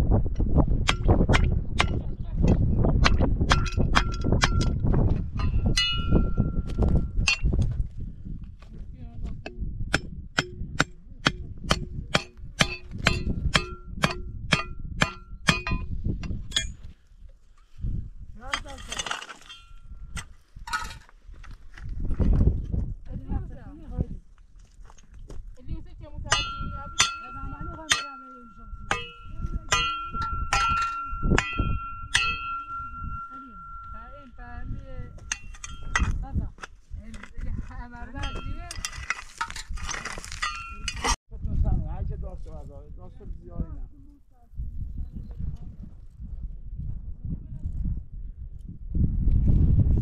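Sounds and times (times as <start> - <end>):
metal clanging: 5.4 - 7.6, 9.4 - 16.9, 18.4 - 21.1, 26.3 - 36.7, 38.2 - 41.2.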